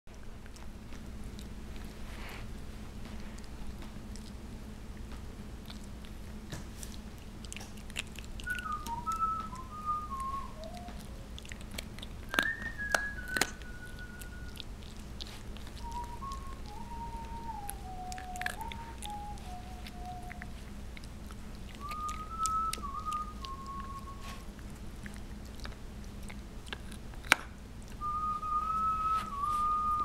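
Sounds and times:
dog chewing crunchy treat: 0.1s - 30.0s
whistled notes sliding downward: 8.4s - 11.2s, 12.3s - 14.6s, 15.8s - 20.4s, 28.0s - 30.0s.

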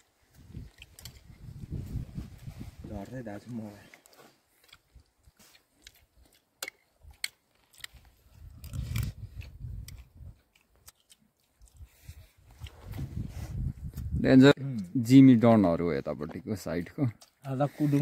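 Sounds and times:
chewing and crunching meat: 0.0s - 1.6s, 3.8s - 13.2s, 16.6s - 18.0s.

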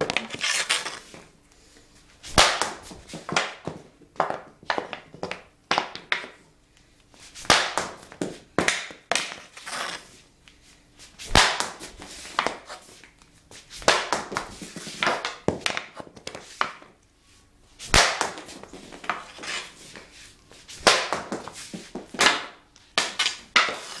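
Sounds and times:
hockey stick hitting puck: 2.3s - 6.4s, 7.4s - 10.1s, 11.2s - 12.7s, 13.8s - 16.9s, 17.9s - 20.1s, 20.7s - 24.0s
puck rattling off concrete wall: 18.0s - 19.6s, 20.8s - 24.0s.

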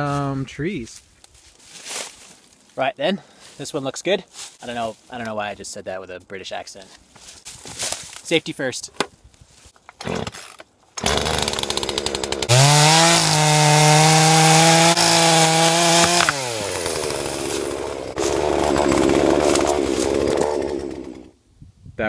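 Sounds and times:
chainsaw idling and revving: 10.0s - 21.4s.

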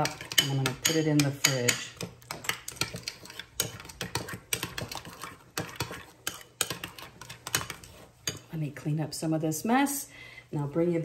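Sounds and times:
metal spoon scraping ceramic bowl: 0.0s - 8.5s.

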